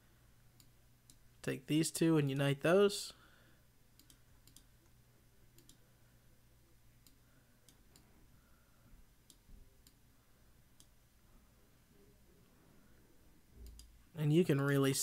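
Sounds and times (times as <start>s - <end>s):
computer mouse clicks: 4.0s - 5.8s, 13.6s - 14.0s.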